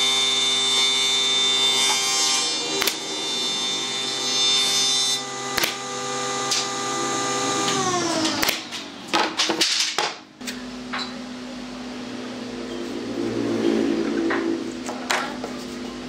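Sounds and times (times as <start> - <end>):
nailer firing snap: 2.8 - 3.0, 5.5 - 5.9, 6.5 - 6.8, 7.7 - 10.6
air compressor motor hum: 5.1 - 9.1.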